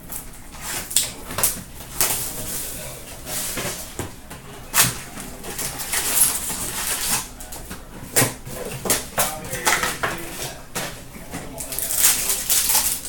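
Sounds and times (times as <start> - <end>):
wrappers torn and crumpled: 11.6 - 13.0.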